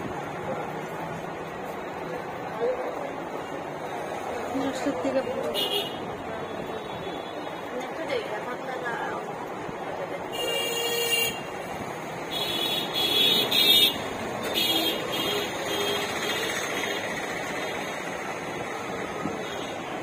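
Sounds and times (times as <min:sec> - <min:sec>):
traffic hum: 0:00.0 - 0:20.0
vehicle horns honking: 0:05.6 - 0:06.1, 0:10.3 - 0:11.5, 0:12.3 - 0:17.0.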